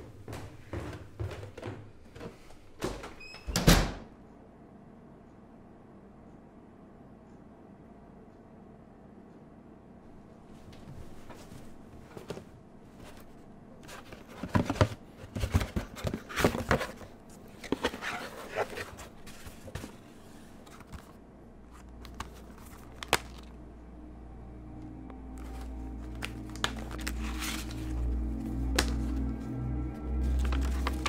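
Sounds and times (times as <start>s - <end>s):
cardboard rustling and tearing: 13.9s - 21.1s
low drone: 23.5s - 31.0s.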